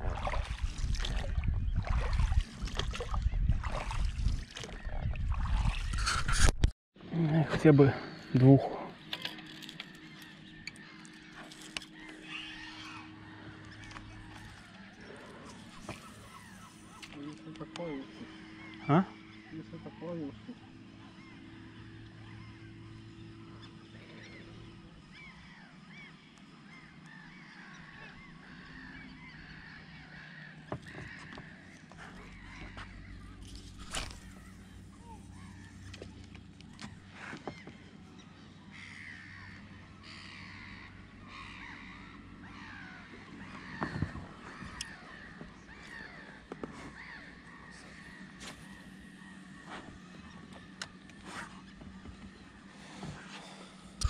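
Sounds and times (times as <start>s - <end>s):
water splashing around a boat: 0.0s - 6.1s, 26.8s - 54.0s
low steady hum: 0.0s - 54.0s
birds calling: 7.0s - 54.0s.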